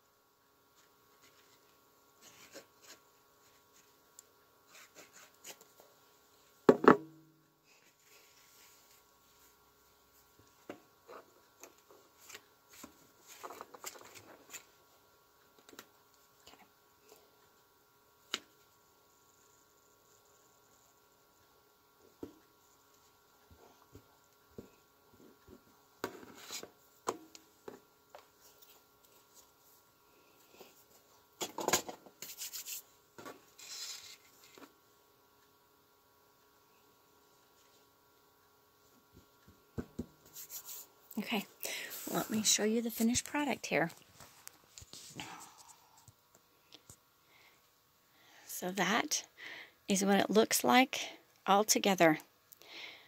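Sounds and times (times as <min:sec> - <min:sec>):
hands rubbing on fabric: 0:40.3 - 0:40.9.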